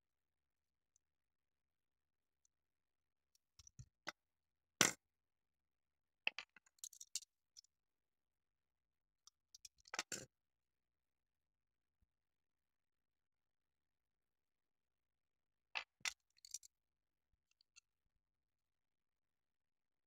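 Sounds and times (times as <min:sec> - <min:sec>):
clicks and taps of handled model: 0:03.3 - 0:04.2, 0:06.3 - 0:07.7, 0:09.2 - 0:10.3, 0:15.8 - 0:16.7.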